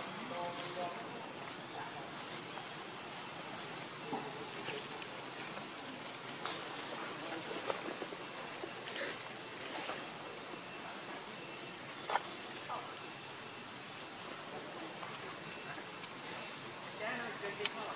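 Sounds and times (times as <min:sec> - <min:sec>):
leaves and twigs rustling: 0:00.0 - 0:10.7
insects droning: 0:00.0 - 0:17.9.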